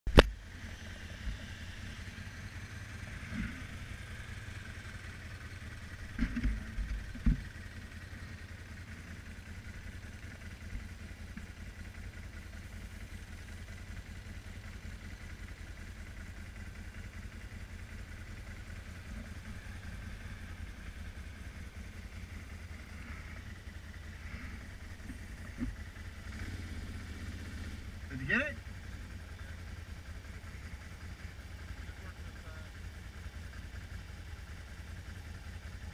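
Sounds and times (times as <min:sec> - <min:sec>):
atv engine idling: 0:00.1 - 0:35.9.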